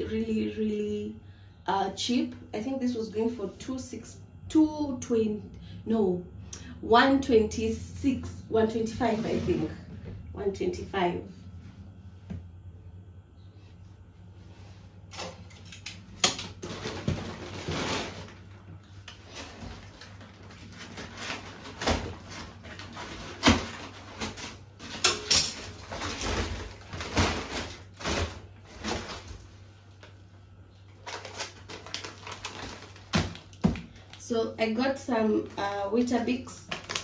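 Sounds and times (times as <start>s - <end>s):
groceries knocking and rustling: 15.1s - 30.2s, 30.8s - 37.0s.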